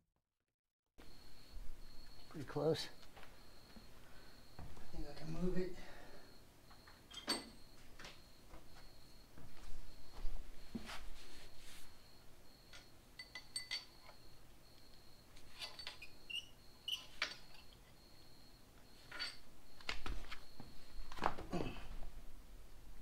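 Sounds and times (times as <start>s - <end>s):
metal tools clinking: 12.7s - 14.2s, 15.4s - 17.8s, 19.0s - 19.4s.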